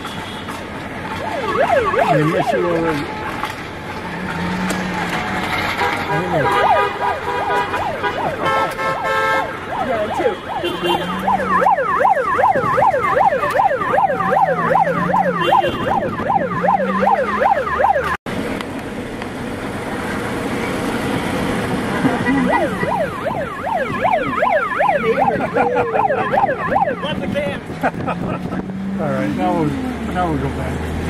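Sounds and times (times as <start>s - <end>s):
car horns honking: 0.0s - 18.2s, 22.1s - 28.2s
traffic noise: 0.0s - 31.0s
emergency vehicle siren: 1.0s - 3.6s, 4.3s - 18.2s, 22.0s - 28.4s.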